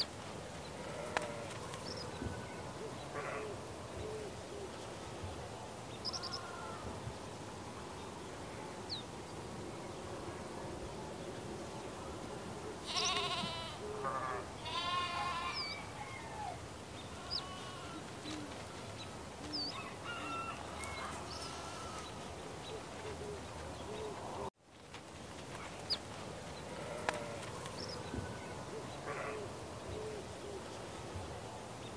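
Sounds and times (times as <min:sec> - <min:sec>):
background hiss: 0:00.0 - 0:31.9
goat bleating: 0:12.8 - 0:15.8, 0:17.1 - 0:18.1, 0:21.1 - 0:22.2.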